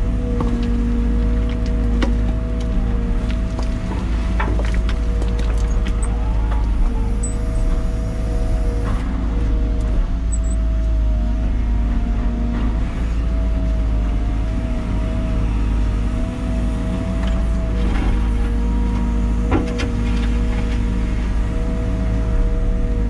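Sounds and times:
excavator engine and hydraulics: 0.0 - 23.0.

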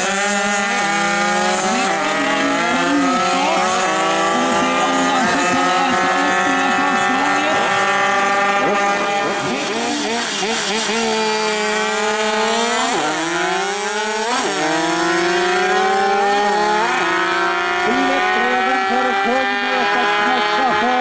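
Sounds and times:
moped engines revving: 0.0 - 21.0.

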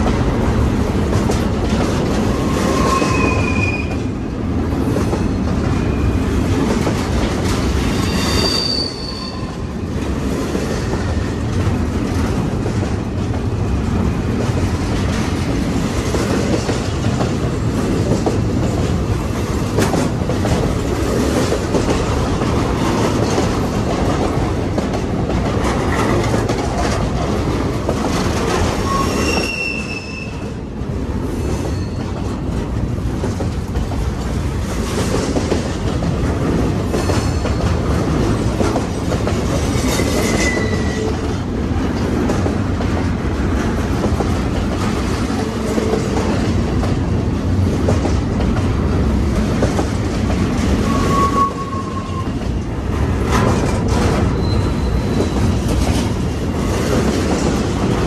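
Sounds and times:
freight train wheels rumbling: 0.0 - 58.0
high wheel squeals: 7.9 - 9.7, 28.8 - 30.4, 50.8 - 52.4, 54.3 - 55.6.

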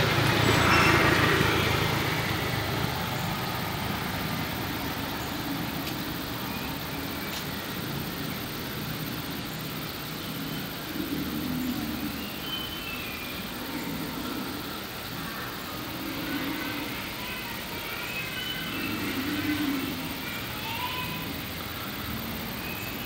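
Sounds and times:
faint high-pitched chirps: 9.5 - 23.0.

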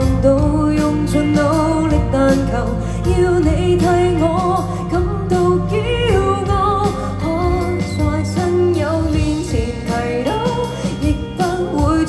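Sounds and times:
band accompaniment: 0.0 - 12.0
woman singing pop ballad: 0.0 - 12.0.

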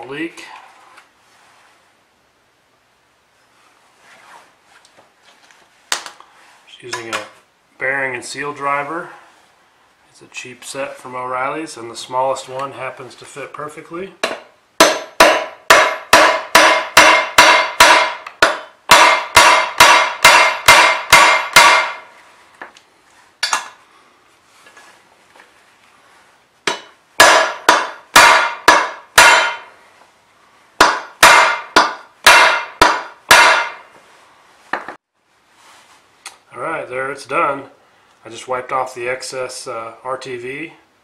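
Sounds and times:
hammer striking metal: 14.2 - 22.1, 26.7 - 29.8, 30.8 - 33.9.

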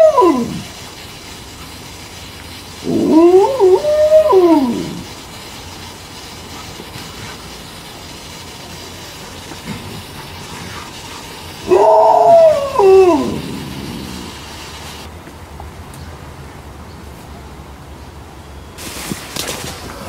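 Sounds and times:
dog howling: 0.0 - 0.7, 2.8 - 5.1, 11.6 - 14.4
water spraying from sprinkler: 0.0 - 15.5, 18.8 - 20.0.

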